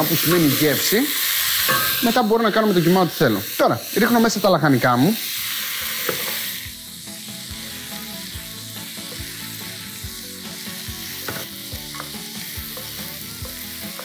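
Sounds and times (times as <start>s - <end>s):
food sizzling in a pot: 0.0s - 14.0s.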